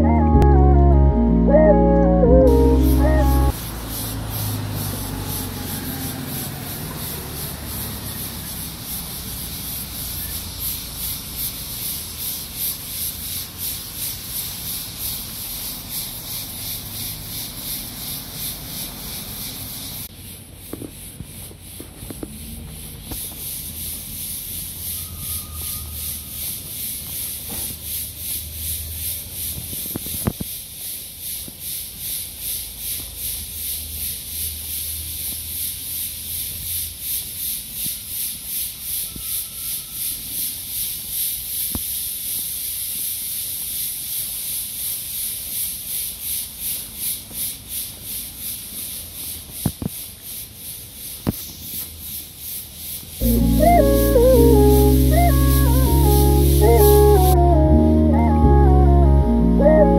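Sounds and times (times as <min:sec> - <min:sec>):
road traffic rumble: 0:00.0 - 0:30.8, 0:46.8 - 0:59.9.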